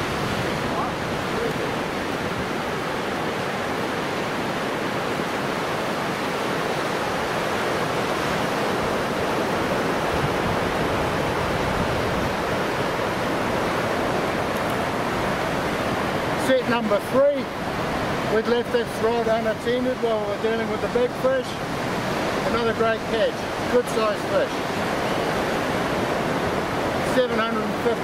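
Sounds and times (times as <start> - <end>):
ocean surf washing onto beach: 0.0 - 28.0.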